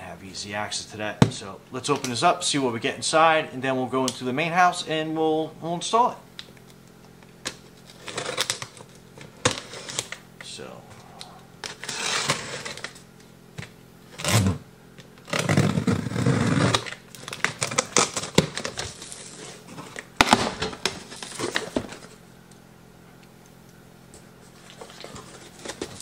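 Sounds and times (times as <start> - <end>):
knife slitting packing tape: 7.9 - 8.8
cardboard rustling and scraping: 11.6 - 13.0, 15.2 - 22.2, 24.4 - 26.0.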